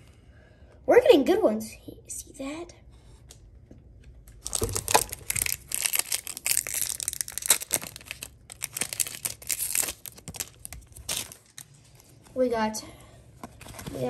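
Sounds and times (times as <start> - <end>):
plastic foil wrapper crinkling: 4.3 - 12.2.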